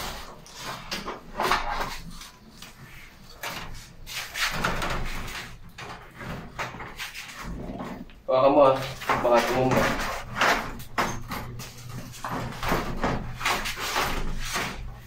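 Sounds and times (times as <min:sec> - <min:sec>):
glass sliding door knocking and rattling: 0:03.4 - 0:15.0.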